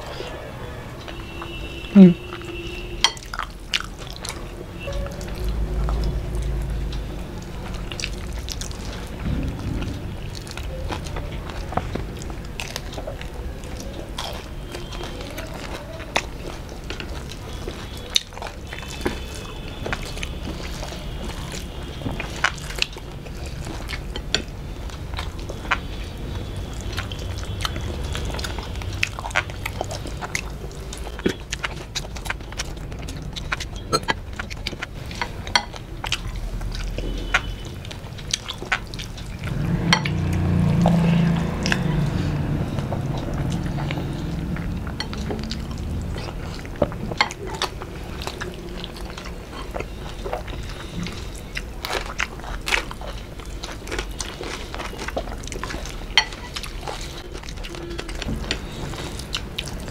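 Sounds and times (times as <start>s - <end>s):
wet smacking and chewing: 0.0s - 59.9s
brief low sound: 9.2s - 11.4s.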